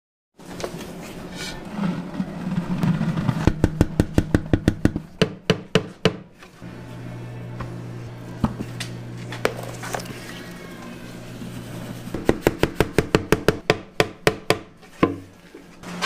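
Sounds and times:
dough mixer humming: 6.6s - 13.6s.

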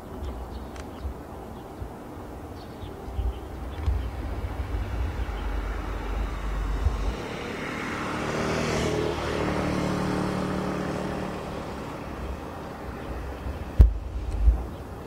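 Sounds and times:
low rumble: 2.7s - 14.8s
vehicle passing by: 2.8s - 15.0s.

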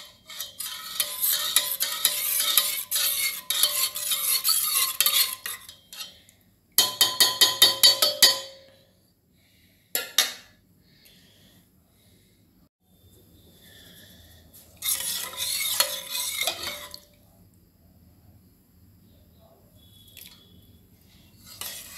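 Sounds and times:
metal spatula scraping a pot: 0.0s - 8.5s, 13.7s - 17.1s, 21.0s - 21.9s
ringing metallic taps on pot: 6.8s - 8.8s.

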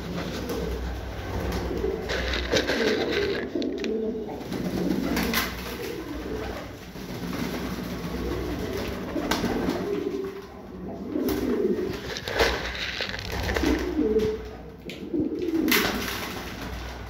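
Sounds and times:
pigeons cooing: 0.0s - 17.0s.

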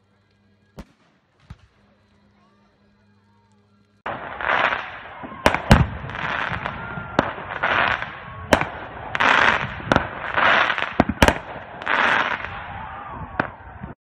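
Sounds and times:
firework crackling: 0.0s - 14.0s
firework shells bursting: 4.0s - 13.9s.

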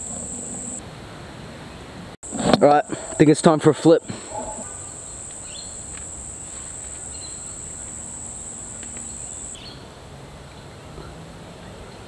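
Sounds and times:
high-pitched insect trill: 0.0s - 0.8s, 4.2s - 9.7s
faint clicks: 7.8s - 9.6s.

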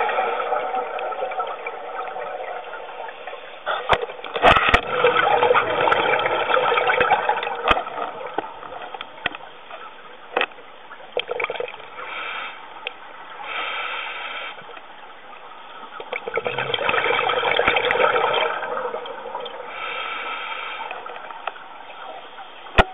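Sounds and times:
gurgling exhaled bubbles underwater: 0.0s - 9.2s, 16.0s - 19.8s
hissing regulator inhalations: 19.7s - 21.2s.

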